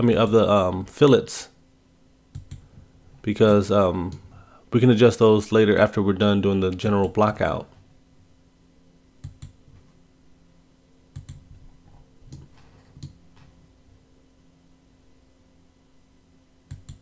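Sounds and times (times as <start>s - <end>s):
faint electrical hum: 0.0s - 17.0s
computer mouse clicks: 2.3s - 2.6s, 9.2s - 9.6s, 11.1s - 11.4s, 16.7s - 17.0s.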